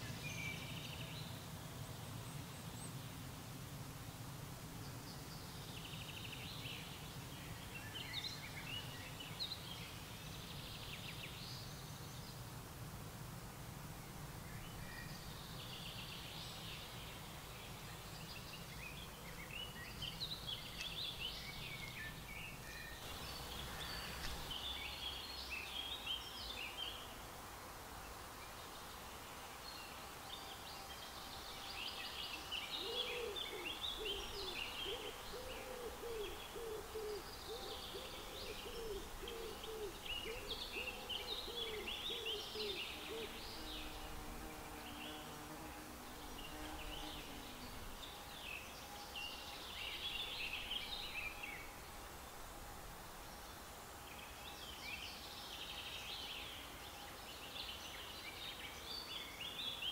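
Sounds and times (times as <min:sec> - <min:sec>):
songbirds singing: 0:00.0 - 0:03.3, 0:04.8 - 0:12.5, 0:14.0 - 0:27.2, 0:27.9 - 0:59.9
owl hooting: 0:32.8 - 0:43.4.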